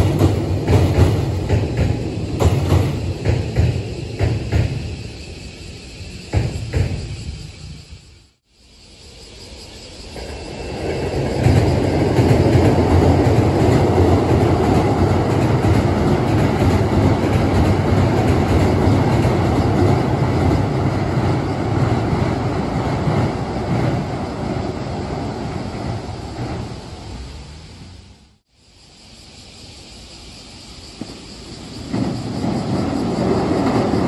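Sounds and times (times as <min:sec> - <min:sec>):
train wheels rumbling on bridge: 0:00.0 - 0:08.2, 0:09.4 - 0:28.4, 0:29.7 - 0:34.0.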